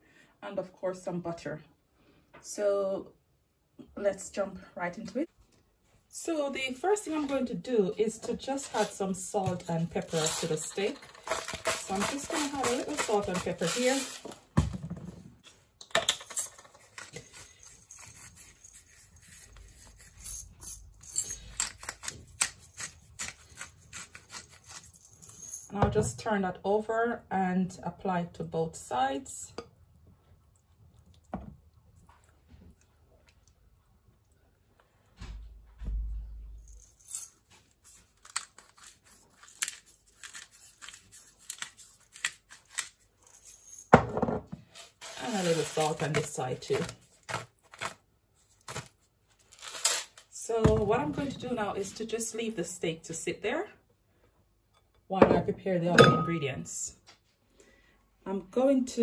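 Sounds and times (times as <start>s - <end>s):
seasoning containers clicking and rattling: 8.6s - 14.4s.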